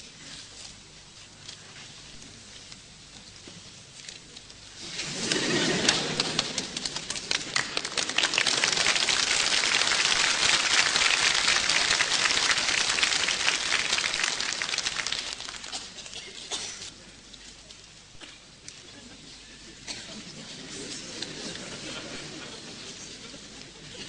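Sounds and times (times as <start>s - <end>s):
audience applauding: 5.2s - 16.2s.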